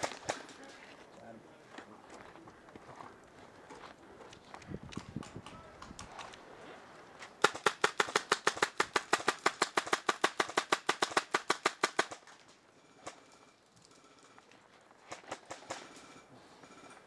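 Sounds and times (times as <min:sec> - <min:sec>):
airsoft gun rapid firing: 0:07.4 - 0:12.3.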